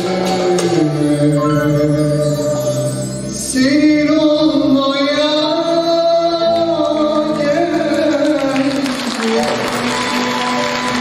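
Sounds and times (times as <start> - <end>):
man singing a long note: 0.0 - 9.7.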